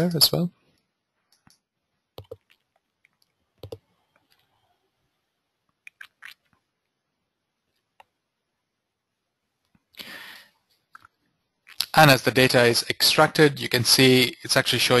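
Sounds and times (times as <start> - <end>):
faint clicks and smacking: 0.6 - 4.8, 5.6 - 7.0, 7.6 - 8.3, 9.5 - 10.0, 10.6 - 12.0.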